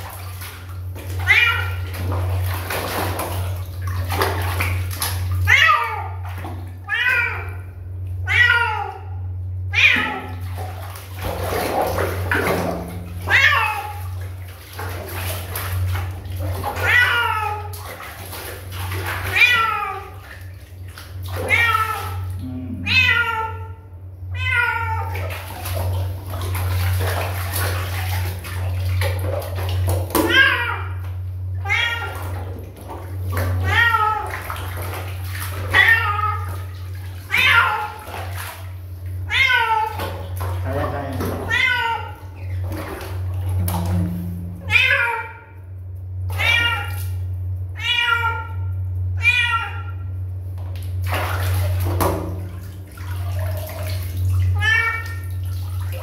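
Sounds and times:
water splashing and sloshing: 0:00.0 - 0:56.0
cat meowing: 0:01.2 - 0:01.9, 0:08.2 - 0:09.1, 0:09.7 - 0:10.4, 0:13.2 - 0:14.0, 0:16.8 - 0:17.7, 0:19.3 - 0:20.2, 0:21.4 - 0:25.2, 0:31.6 - 0:32.3, 0:33.6 - 0:34.4, 0:35.7 - 0:36.7, 0:37.3 - 0:38.1, 0:39.3 - 0:40.0, 0:41.4 - 0:42.2, 0:44.6 - 0:45.6, 0:46.3 - 0:47.0, 0:47.8 - 0:50.0, 0:54.6 - 0:55.2
kitten meowing: 0:22.8 - 0:23.7, 0:41.4 - 0:42.2, 0:44.6 - 0:45.5.

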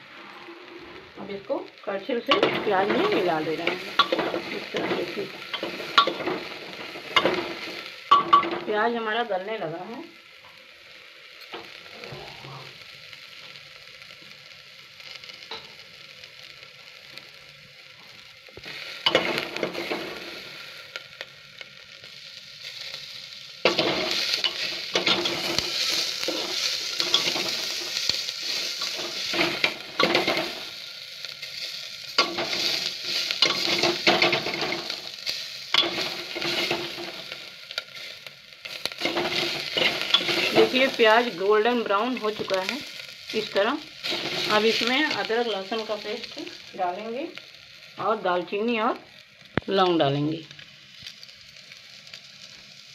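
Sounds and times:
onions sizzling in oil: 0:00.0 - 0:52.9
steel ladle scraping a pot: 0:39.0 - 0:40.8.

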